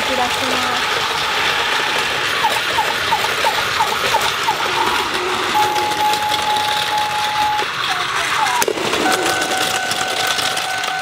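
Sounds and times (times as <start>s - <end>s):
toy train running on track: 0.0s - 11.0s
electronic toy chirps: 2.4s - 10.9s
electronic toy beep: 5.5s - 11.0s.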